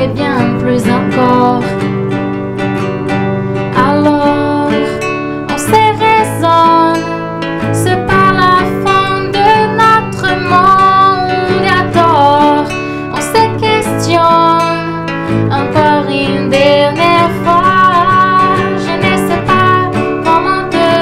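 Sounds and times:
woman singing into a microphone: 0:00.0 - 0:02.0, 0:03.6 - 0:21.0
nylon-string guitar: 0:00.0 - 0:21.0.

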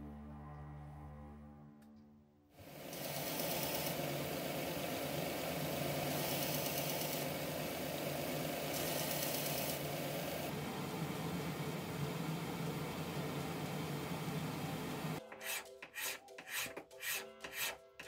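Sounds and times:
belt sander grinding: 0:02.7 - 0:10.5.

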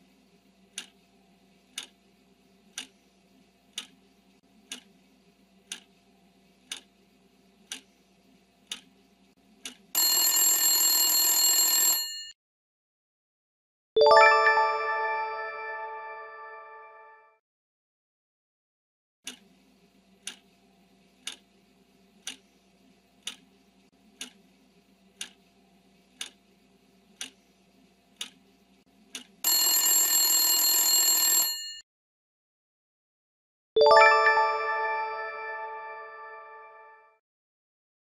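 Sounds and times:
clock ticking: 0:00.8 - 0:01.0, 0:01.8 - 0:02.0, 0:03.7 - 0:04.0, 0:04.7 - 0:04.9, 0:05.7 - 0:05.9, 0:06.7 - 0:06.9, 0:07.7 - 0:07.9, 0:08.7 - 0:08.9, 0:20.2 - 0:20.4, 0:21.2 - 0:21.4, 0:23.2 - 0:23.5, 0:24.2 - 0:24.4, 0:27.2 - 0:27.4, 0:28.2 - 0:28.4
alarm bell ringing: 0:10.0 - 0:12.3, 0:29.5 - 0:31.8
chime ding: 0:14.0 - 0:16.9, 0:33.8 - 0:36.9.

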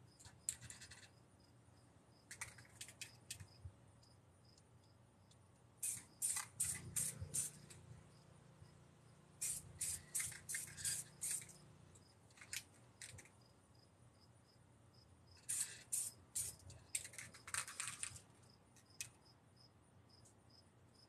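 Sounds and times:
spray paint can hissing: 0:05.8 - 0:07.8, 0:09.4 - 0:11.6, 0:15.4 - 0:18.1.

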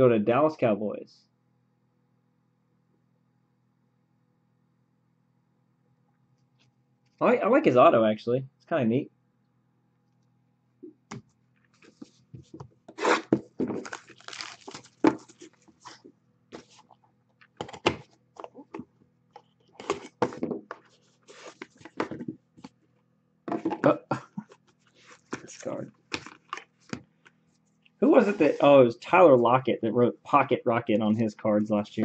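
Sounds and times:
cards rubbing and scraping: 0:20.8 - 0:22.0, 0:28.0 - 0:28.7.

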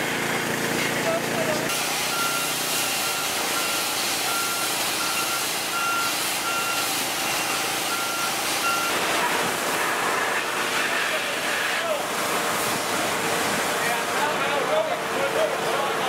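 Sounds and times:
vehicle backup alarm beeping: 0:02.0 - 0:09.1.

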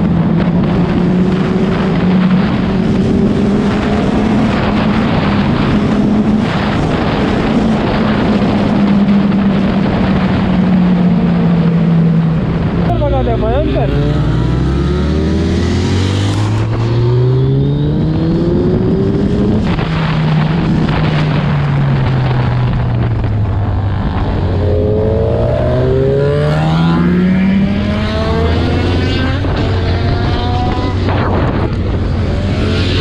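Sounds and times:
motorcycle engine accelerating: 0:00.0 - 0:33.0
wind rushing: 0:00.0 - 0:33.0.

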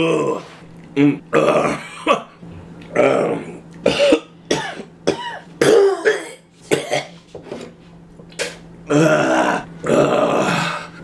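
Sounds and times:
man coughing and gagging: 0:01.3 - 0:02.4, 0:03.8 - 0:07.2.

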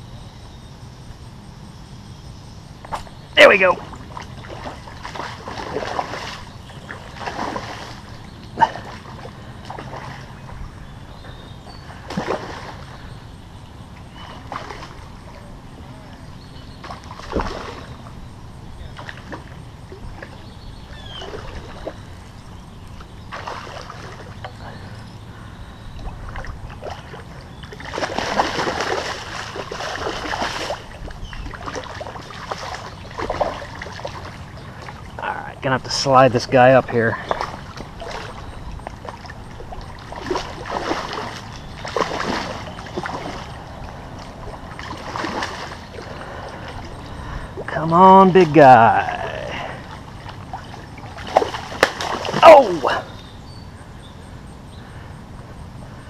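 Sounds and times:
fish splashing at water surface: 0:03.8 - 0:10.3, 0:12.0 - 0:13.0, 0:14.1 - 0:15.4, 0:16.8 - 0:18.0, 0:23.3 - 0:24.4, 0:26.3 - 0:35.1, 0:37.1 - 0:47.6, 0:49.5 - 0:53.1.

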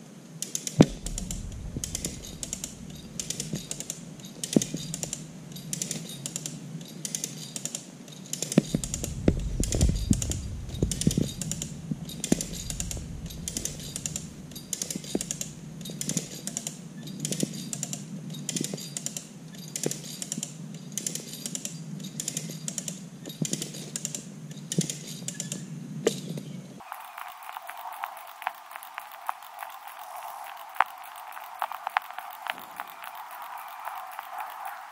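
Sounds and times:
low knocks and creaks: 0:00.8 - 0:05.7, 0:08.6 - 0:16.2
low rumble: 0:00.8 - 0:05.7, 0:08.7 - 0:16.0.

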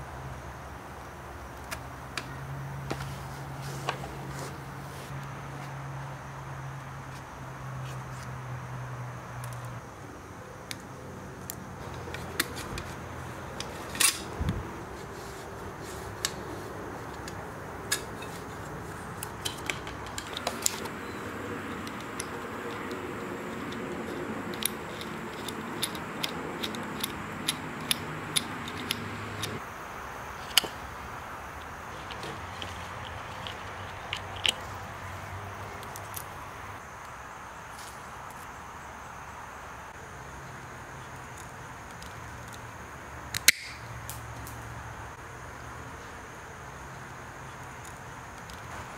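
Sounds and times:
small metallic clicks and taps: 0:21.7 - 0:29.6.

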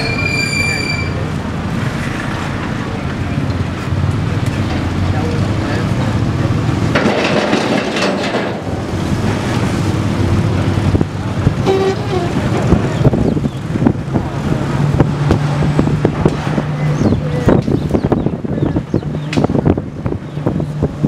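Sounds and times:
minibus engine running: 0:01.0 - 0:21.0
rattling knocks: 0:06.9 - 0:08.8
horn toot: 0:11.6 - 0:12.6.

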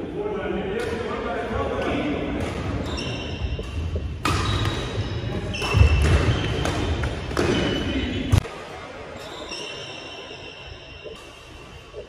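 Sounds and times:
rackets hitting shuttlecock: 0:02.4 - 0:08.5
shoes squeaking: 0:02.6 - 0:08.4, 0:09.2 - 0:12.0.

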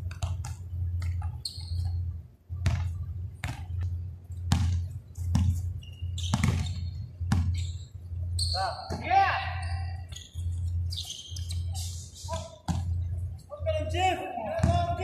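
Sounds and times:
basketball bouncing on hard court: 0:00.0 - 0:02.0, 0:02.6 - 0:07.7, 0:12.6 - 0:13.0, 0:14.5 - 0:15.0
steady low hum: 0:00.0 - 0:15.0.

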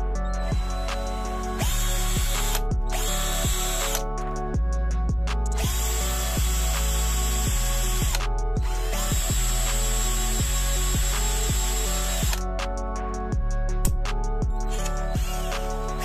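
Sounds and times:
background music with beat: 0:00.0 - 0:16.0
cordless drill running: 0:01.6 - 0:04.0, 0:05.6 - 0:12.4.

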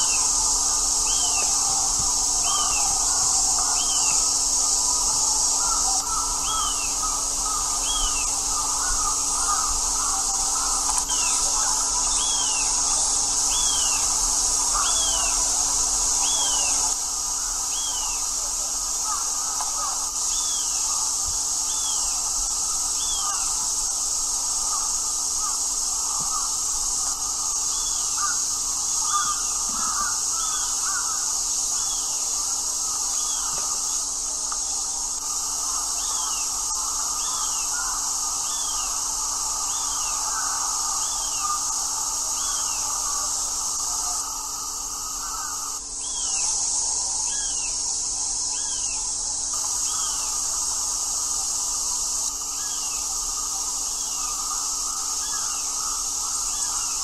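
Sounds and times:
insect drone: 0:00.0 - 0:57.0
crow cawing: 0:05.5 - 0:12.8, 0:19.0 - 0:21.0, 0:23.0 - 0:23.7, 0:24.6 - 0:32.0, 0:35.2 - 0:46.2.

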